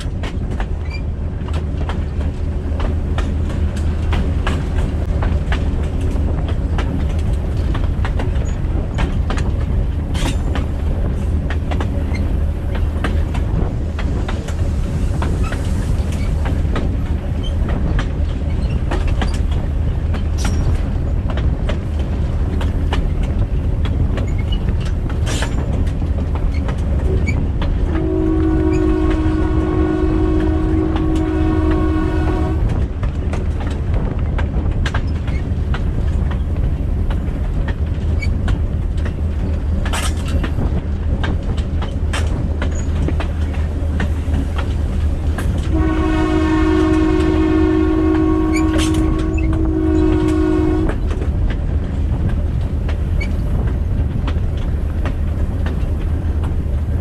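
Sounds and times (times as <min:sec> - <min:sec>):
train rumbling: 0:00.0 - 0:57.0
wheels clacking over rail joints: 0:00.0 - 0:57.0
locomotive air horn blasts: 0:27.9 - 0:32.8, 0:45.7 - 0:51.1.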